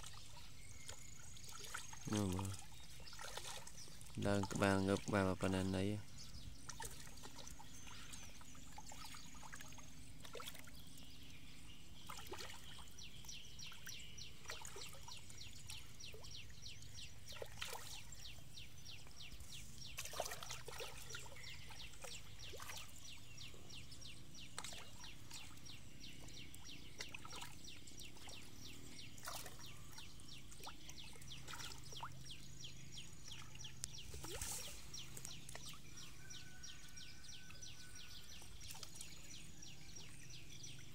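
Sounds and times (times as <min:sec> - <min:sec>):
fish splashing at water surface: 0:00.9 - 0:05.1, 0:20.0 - 0:21.4.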